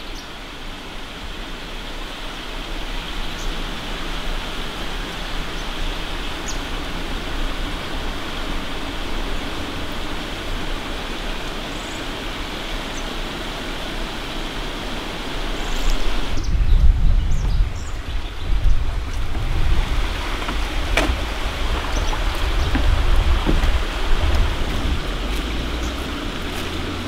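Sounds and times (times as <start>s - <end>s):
rushing forest ambience: 0.0s - 27.0s
low rumble: 16.4s - 27.0s.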